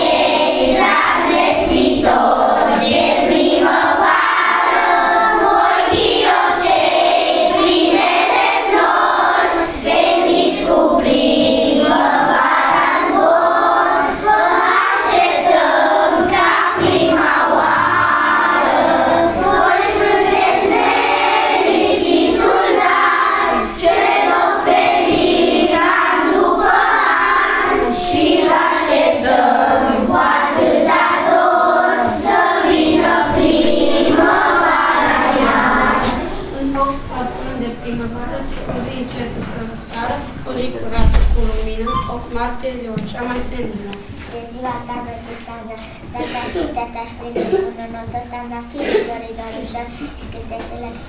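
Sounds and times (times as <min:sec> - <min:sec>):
children singing in chorus: 0:00.0 - 0:37.7.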